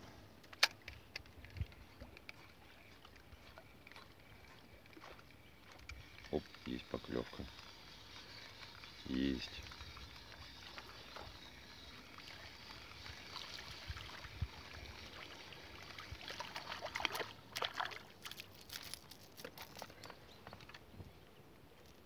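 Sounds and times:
fish splashing at water surface: 12.0s - 19.0s.

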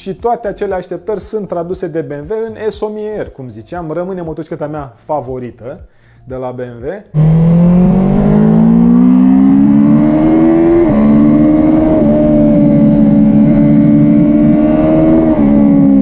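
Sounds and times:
motorcycle engine accelerating hard: 7.2s - 16.0s.

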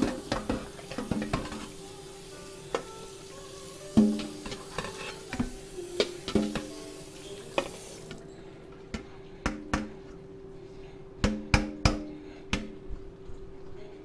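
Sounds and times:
oil sizzling in a frying pan: 0.0s - 8.2s.

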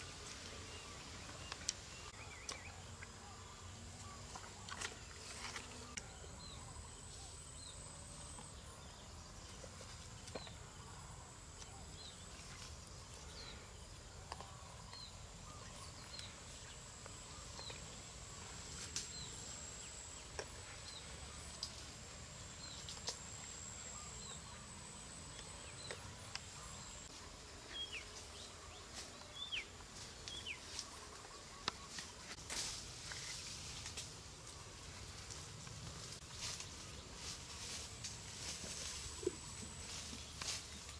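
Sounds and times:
high insect buzz: 14.8s - 40.9s.

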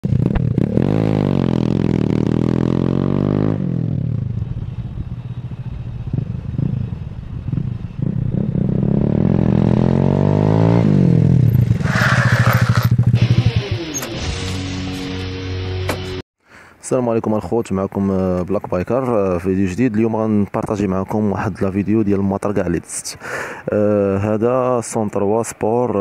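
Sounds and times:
motorcycle engine revving: 0.0s - 15.0s.

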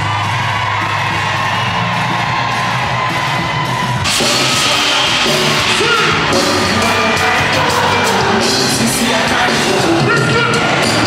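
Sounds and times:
crowd yelling and whooping: 0.0s - 11.0s
loud amplified live music: 0.0s - 11.0s
person singing: 4.1s - 11.0s.

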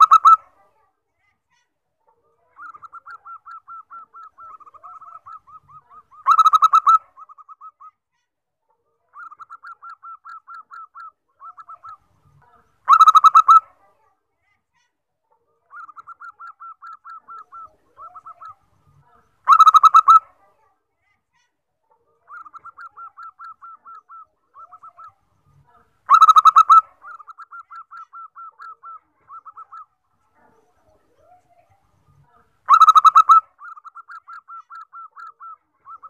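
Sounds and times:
dove cooing: 2.6s - 7.8s, 15.7s - 18.6s, 22.3s - 25.2s, 32.7s - 36.0s.

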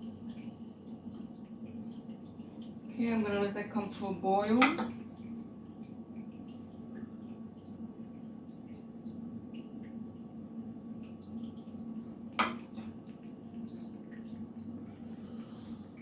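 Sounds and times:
sauce bubbling and popping in pan: 4.6s - 14.8s.

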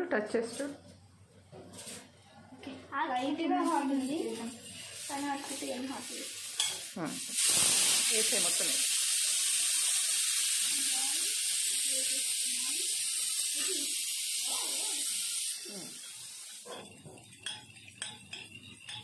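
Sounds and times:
steady high hiss: 3.3s - 16.5s
spoon clinking against metal bowl: 6.6s - 6.9s, 16.0s - 19.0s.

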